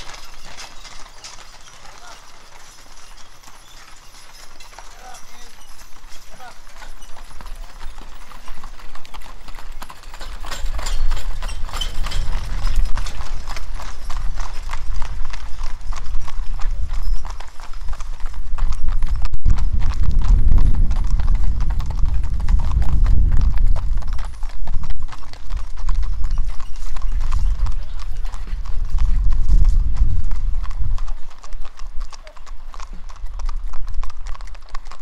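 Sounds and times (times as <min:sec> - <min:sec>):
hooves clip-clopping on gravel: 0:00.0 - 0:35.0
low rumble: 0:18.9 - 0:25.4, 0:27.5 - 0:31.2.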